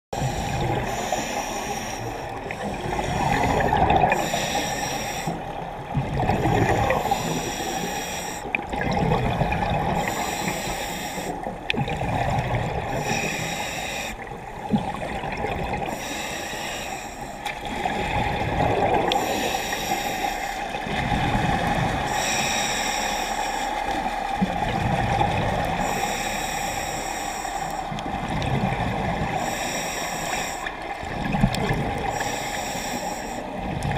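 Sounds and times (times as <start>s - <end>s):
regulator hiss on inhalation: 0.2s - 2.3s, 4.1s - 5.4s, 7.0s - 8.5s, 10.0s - 11.4s, 13.0s - 14.2s, 22.1s - 23.7s
gurgling exhaled bubbles: 2.2s - 4.5s, 5.6s - 7.6s, 8.4s - 10.6s, 11.4s - 13.4s, 14.2s - 16.0s, 17.6s - 19.6s, 20.7s - 22.2s, 24.4s - 25.9s, 27.9s - 29.5s, 30.7s - 32.3s, 33.6s - 33.9s.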